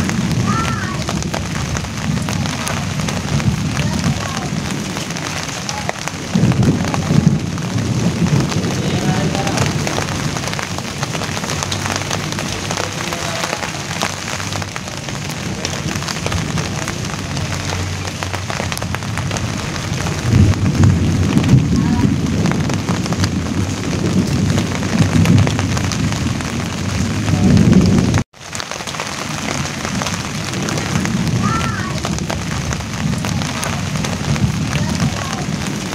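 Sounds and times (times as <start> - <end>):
low rumble: 0.0 - 28.2
rain on leaves: 0.0 - 35.9.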